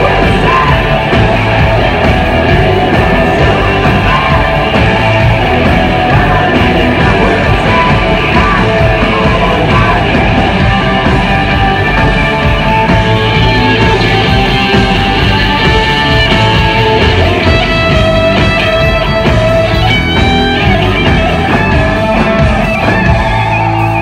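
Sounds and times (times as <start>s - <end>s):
drums: 0.0s - 24.0s
electric guitar: 0.0s - 24.0s.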